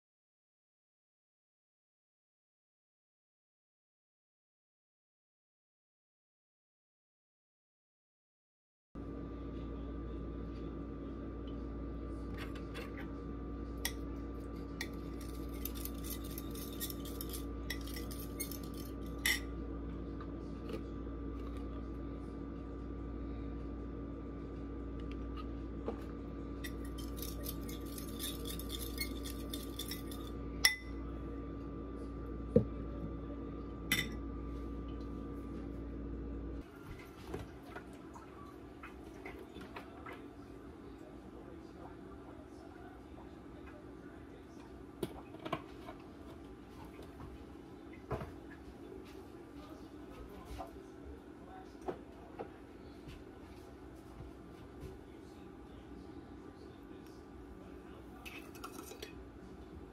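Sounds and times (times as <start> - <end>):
steady hum: 9.0 - 59.9
dishes and utensils clinking: 14.8 - 19.5, 26.6 - 31.0, 58.2 - 59.2.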